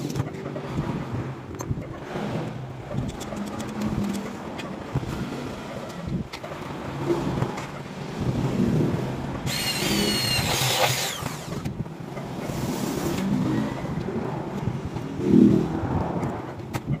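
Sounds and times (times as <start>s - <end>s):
electric drill boring into metal: 9.5s - 11.7s.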